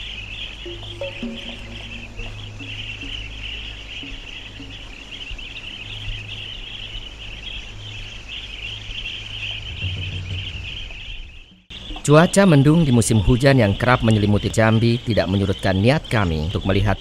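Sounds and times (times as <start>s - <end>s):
flock of birds chattering: 0.0s - 17.0s
low rumble: 9.0s - 11.7s.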